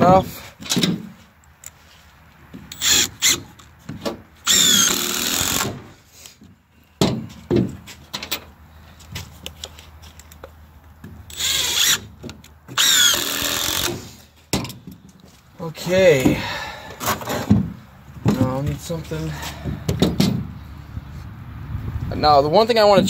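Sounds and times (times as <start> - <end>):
cordless drill driving screws: 2.7 - 3.5, 4.4 - 5.9, 11.3 - 12.1, 12.7 - 14.2.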